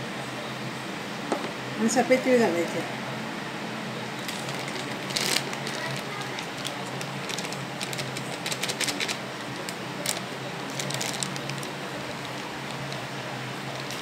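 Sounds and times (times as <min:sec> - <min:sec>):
plastic bag crinkling: 0:04.2 - 0:14.0.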